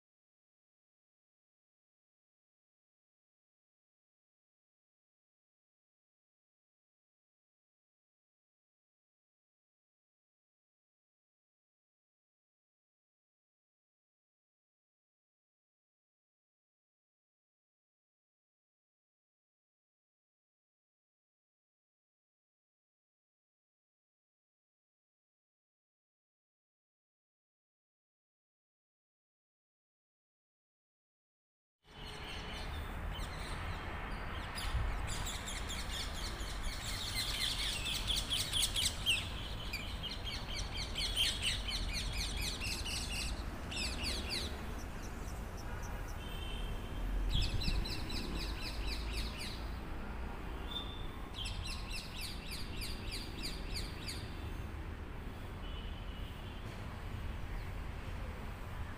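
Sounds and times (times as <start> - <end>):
small birds chirping in trills: 31.9 - 49.8, 50.6 - 54.8.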